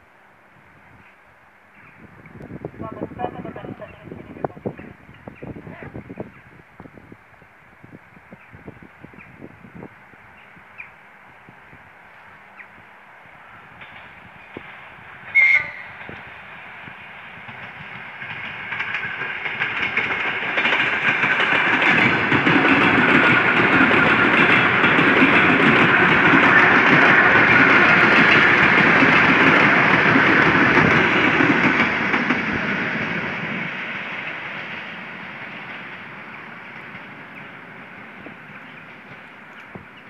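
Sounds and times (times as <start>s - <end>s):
train wheels on rails: 6.2s - 40.0s.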